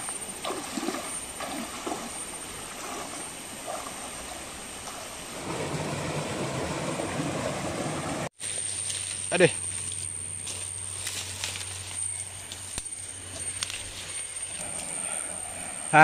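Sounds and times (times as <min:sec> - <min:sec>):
feet splashing in water: 0:00.0 - 0:06.2
stream running over rocks: 0:00.0 - 0:09.3
waterfall rushing into pool: 0:04.4 - 0:08.3.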